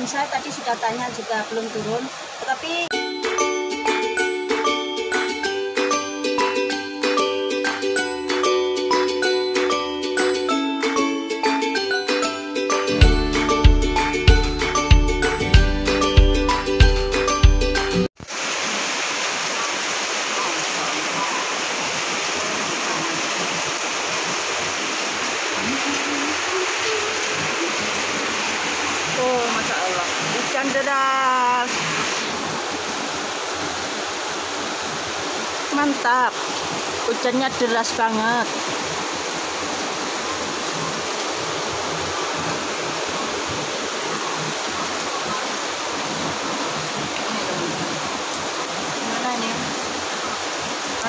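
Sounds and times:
heavy rain pouring: 0.0 - 51.0.

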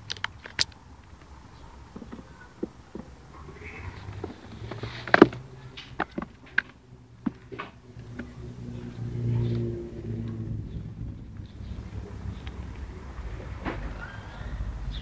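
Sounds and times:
squirrel scrabbling clicks and knocks: 0.0 - 10.4
low humming drone: 6.8 - 15.0.

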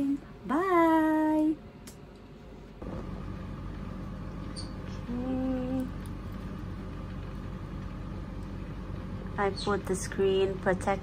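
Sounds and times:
room hum: 0.0 - 11.0.

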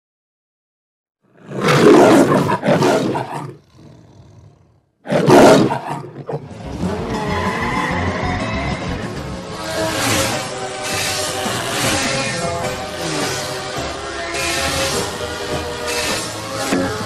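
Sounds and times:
lion roaring: 1.2 - 7.2
cartoon soundtrack music: 6.4 - 17.0.

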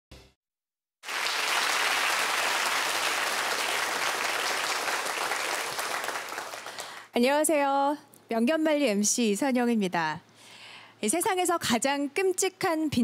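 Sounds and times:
audience applauding: 1.0 - 7.1.

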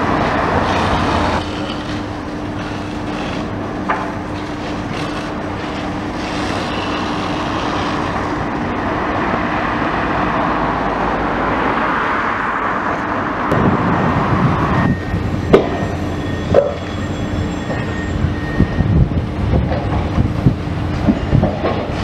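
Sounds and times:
excavator engine and hydraulics hum: 0.0 - 22.0
rushing noise: 6.1 - 22.0
heavy low rumble: 12.6 - 16.4.

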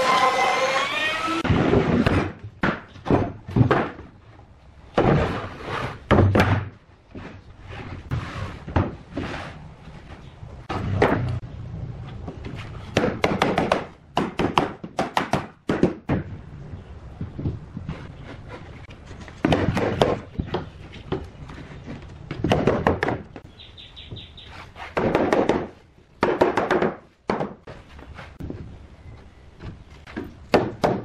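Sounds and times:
power tool whine: 0.0 - 1.5
wooden boards thunking and knocking: 1.4 - 4.2, 4.9 - 5.5, 6.1 - 7.4, 8.3 - 9.3, 10.7 - 11.4, 12.3 - 16.4, 19.2 - 23.5, 25.0 - 27.7, 29.6 - 31.0.

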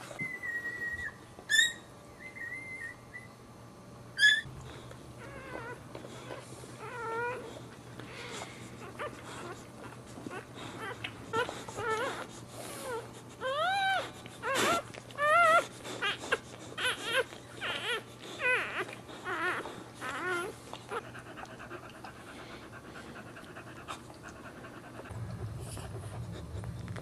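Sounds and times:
puppies squealing and whimpering: 0.0 - 3.4, 4.2 - 22.0
dog panting: 4.6 - 27.0.

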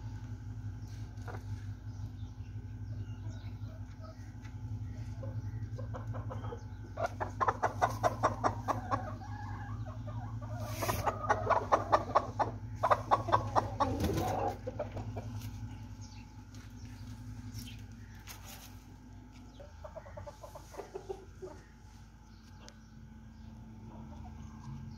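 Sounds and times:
steady low hum: 0.0 - 24.9
chicken clucking: 0.8 - 24.9.

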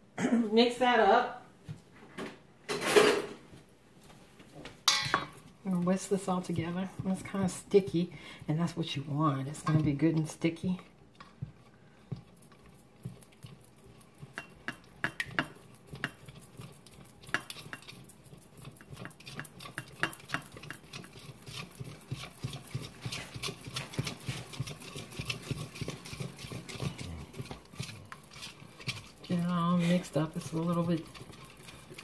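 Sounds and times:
whisk clicking in metal bowl: 4.9 - 32.0.

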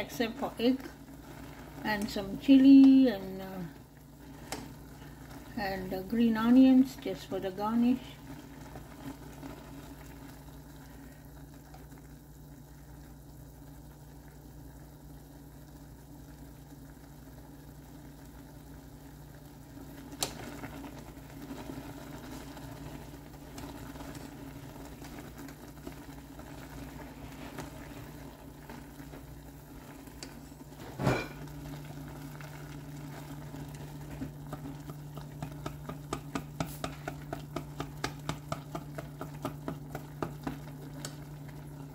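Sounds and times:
noodles simmering in broth: 0.0 - 41.9.

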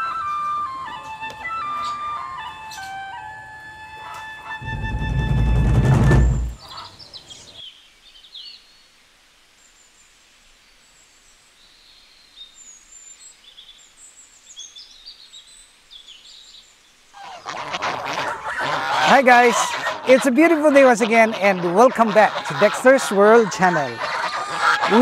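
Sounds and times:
geese and ducks honking: 0.0 - 7.0, 17.2 - 25.0
deep boom: 4.6 - 6.6
small birds chirping: 6.3 - 9.0, 9.6 - 25.0.

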